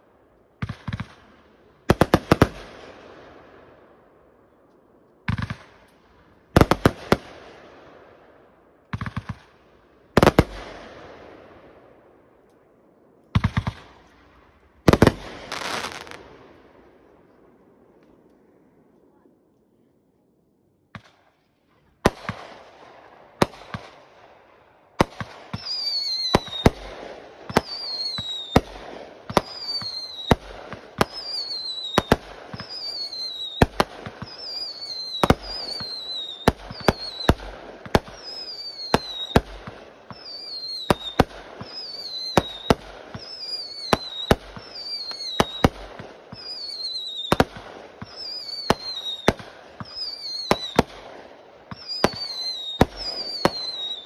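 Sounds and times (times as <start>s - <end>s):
fireworks crackling: 0.6s - 3.4s, 5.2s - 8.0s, 10.1s - 12.6s, 13.3s - 17.1s, 25.0s - 54.0s
fireworks bangs: 0.6s - 3.5s, 5.2s - 5.9s, 6.5s - 8.1s, 8.9s - 12.2s, 13.3s - 18.5s, 22.0s - 24.2s, 25.0s - 54.0s
falling whistle: 46.4s - 47.3s, 48.1s - 50.8s, 51.8s - 54.0s.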